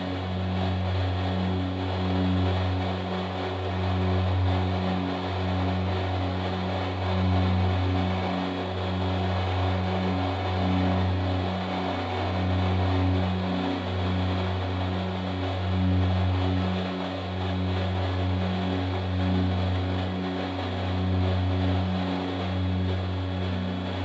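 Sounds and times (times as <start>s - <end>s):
slow ambient synthesizer music: 0.0s - 24.0s.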